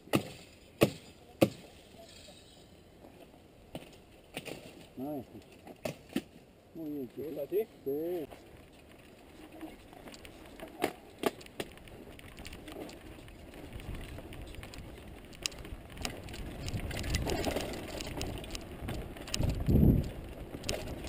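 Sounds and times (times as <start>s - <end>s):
tyres rumbling on dirt trail: 7.0s - 21.0s.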